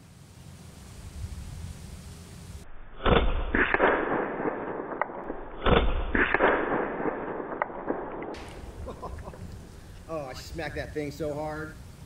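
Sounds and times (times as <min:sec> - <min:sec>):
pellet hitting target: 0:03.0 - 0:08.8
air rifle firing: 0:03.0 - 0:08.9.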